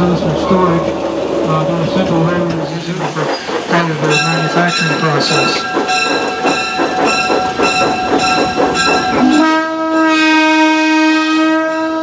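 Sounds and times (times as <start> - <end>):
train wheels rhythmic beats: 2.1 - 10.0
locomotive whistle: 9.1 - 12.0.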